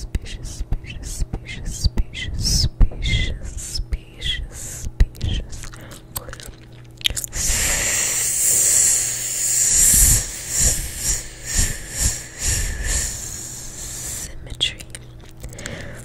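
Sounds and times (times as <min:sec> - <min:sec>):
mouth hissing into microphone: 0:07.2 - 0:14.3.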